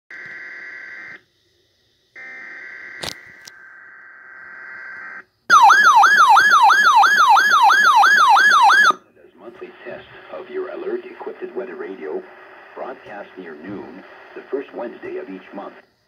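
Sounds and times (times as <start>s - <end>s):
harsh buzzing data tone: 2.1s - 7.0s
warbling alert siren: 3.8s - 9.0s.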